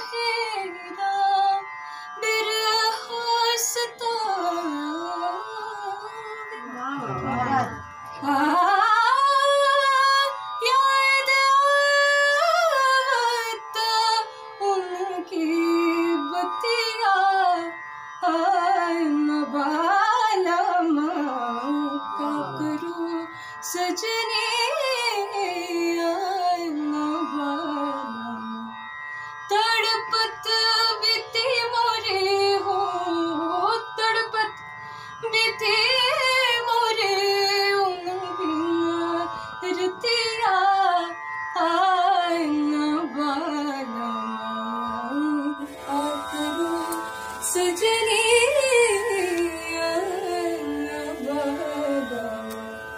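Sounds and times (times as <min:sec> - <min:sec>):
woman singing ornamented melody: 0:00.0 - 0:28.8, 0:29.5 - 0:52.9
steady drone: 0:45.0 - 0:52.9
bright hiss: 0:45.7 - 0:48.2
tabla strokes: 0:45.8 - 0:52.7.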